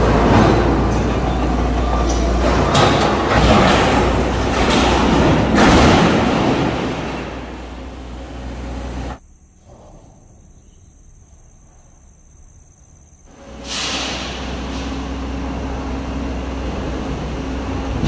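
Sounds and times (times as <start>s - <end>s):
metal crashes and bangs: 0.0s - 8.8s
diesel engine hum: 0.0s - 9.3s, 13.3s - 18.0s
excavator scraping sheet metal: 13.3s - 15.6s.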